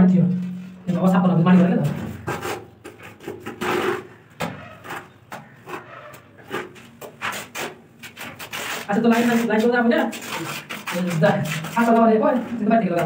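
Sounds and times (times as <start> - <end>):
trowel scraping mortar from bucket: 2.2 - 12.0.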